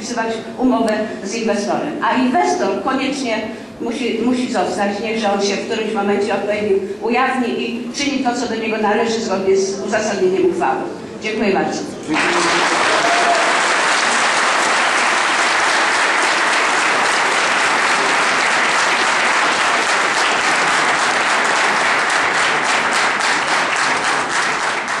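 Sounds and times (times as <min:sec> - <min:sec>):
crowd applauding: 0:12.1 - 0:25.0.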